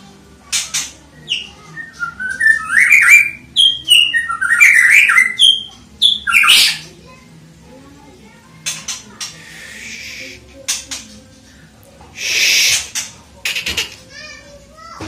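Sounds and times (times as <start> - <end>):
harsh noisy bird note: 0.7 - 6.9, 12.2 - 13.9
bird singing whistled notes: 1.3 - 6.8.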